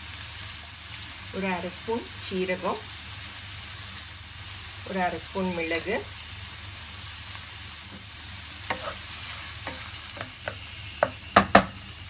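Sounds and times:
vegetables sizzling in a frying pan: 0.0 - 12.0
wooden spatula scraping a pan: 8.0 - 11.7.

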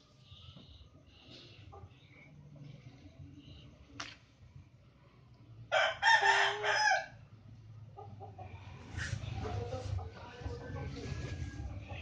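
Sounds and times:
rooster crowing: 5.7 - 7.2.

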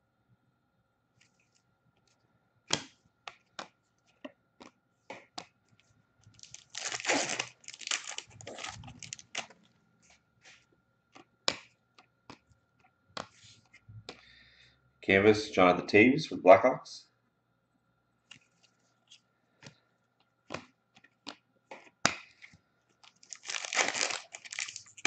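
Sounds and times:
card pack wrapper tearing and crinkling: 6.4 - 9.5, 23.1 - 25.0.

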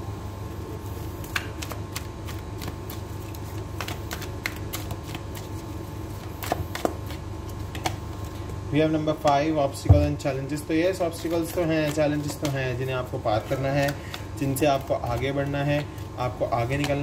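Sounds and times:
steady low hum: 0.0 - 17.0
cards being shuffled: 1.0 - 8.5, 11.1 - 17.0.

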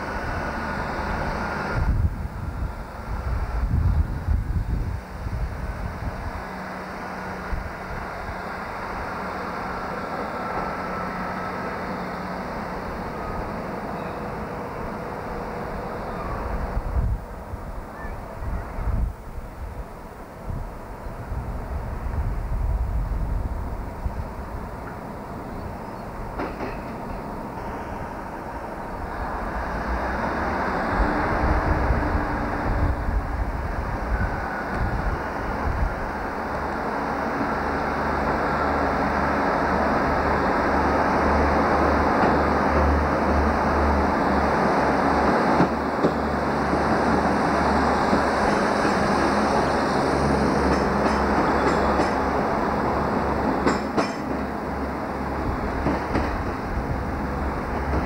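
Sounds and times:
diesel train running noise: 0.0 - 58.0
wheels clicking over rail joints: 26.3 - 27.2, 53.6 - 54.5.

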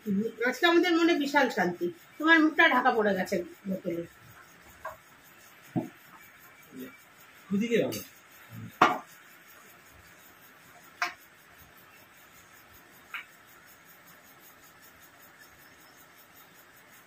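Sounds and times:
tableware knock: 8.8 - 9.1.

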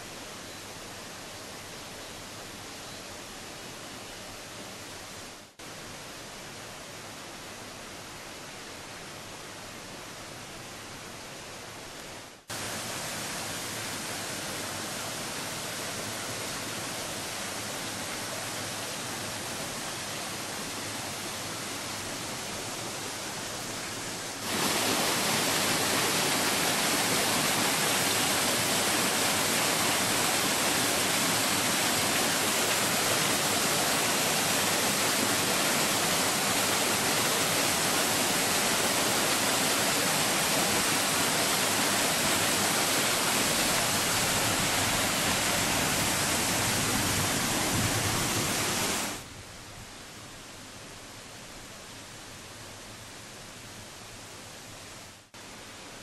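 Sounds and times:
waterfall rushing over rocks: 11.9 - 49.3.

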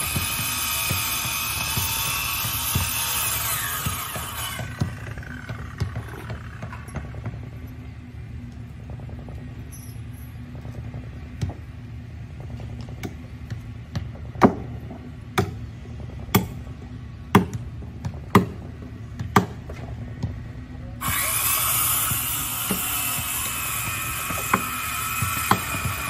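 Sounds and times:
power tool whine: 0.0 - 7.6, 21.0 - 26.0
steady low hum: 0.0 - 26.0.

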